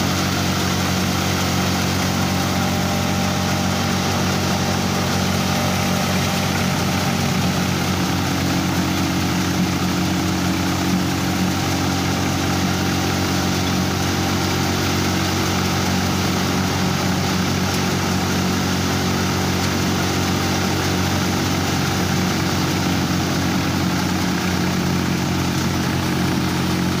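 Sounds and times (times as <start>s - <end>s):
thresher machine droning: 0.0s - 27.0s.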